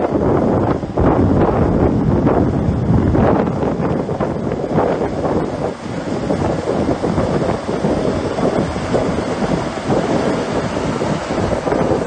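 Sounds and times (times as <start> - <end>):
wind buffeting microphone: 0.0 - 12.0
earthmoving machinery working: 3.4 - 12.0.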